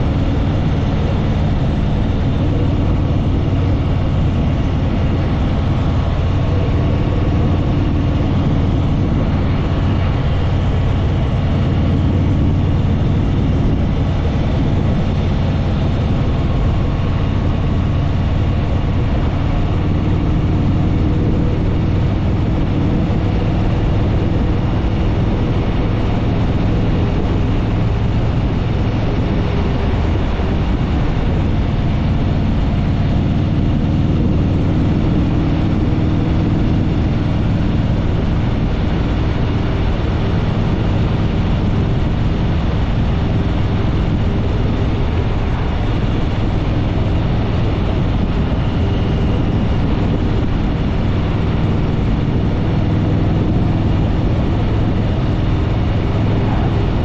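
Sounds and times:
motorcycle engine cruising: 0.0s - 57.0s
wind rush over microphone: 0.0s - 57.0s.

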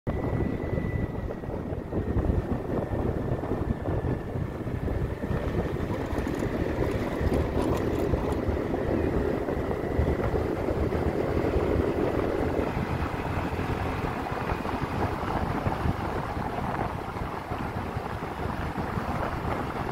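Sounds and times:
vehicle engine and tyres rumbling: 0.1s - 19.9s
wind buffeting microphone: 0.1s - 19.9s.

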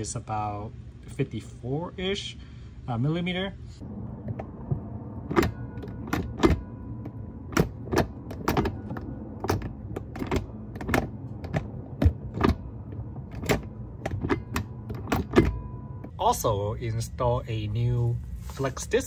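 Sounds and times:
gear lever clicking and clunking: 4.2s - 16.1s.

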